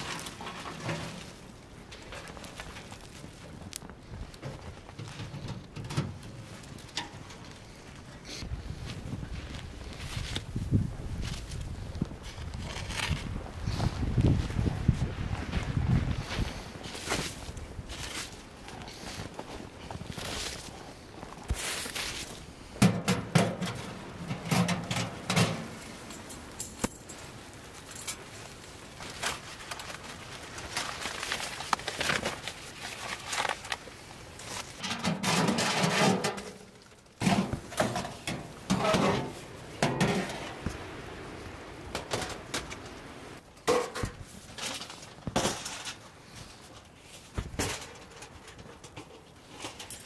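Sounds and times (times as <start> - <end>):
metal panels clanking: 22.8 - 26.1, 34.8 - 40.6
metal sliding scrapes: 34.8 - 36.6, 37.2 - 40.5.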